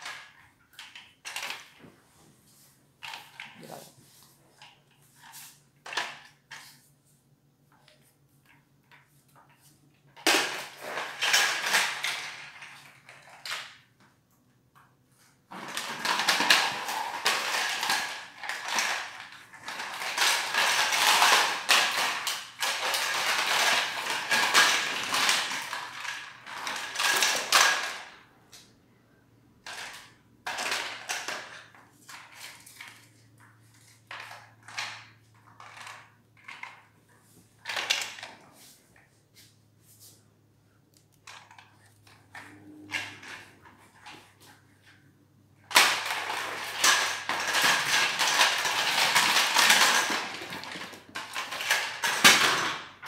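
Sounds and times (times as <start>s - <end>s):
plastic ball clattering on tiles: 0.0s - 1.9s, 4.6s - 6.8s, 7.8s - 14.0s, 14.8s - 28.3s, 29.6s - 37.0s, 37.6s - 38.4s, 45.6s - 53.0s.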